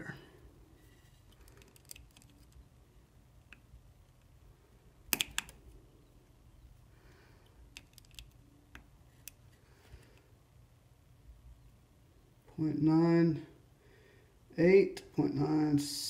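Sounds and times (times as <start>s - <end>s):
low steady hum: 0.0s - 16.0s
probe and screwdriver clicks: 5.1s - 5.6s.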